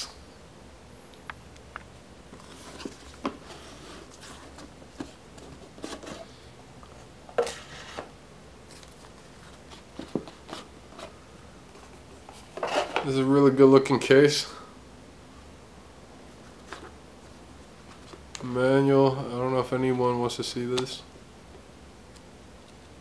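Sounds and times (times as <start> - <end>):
cardboard box handling noise: 2.3 - 6.3.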